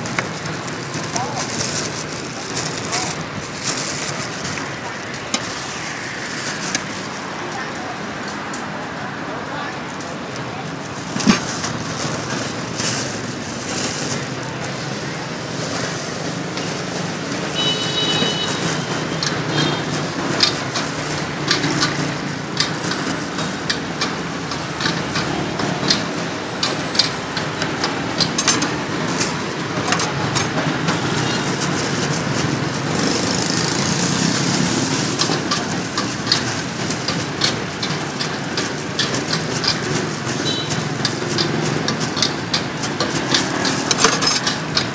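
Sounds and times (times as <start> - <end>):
street traffic rumble: 0.0 - 44.9
plastic bag crinkling: 0.2 - 7.2.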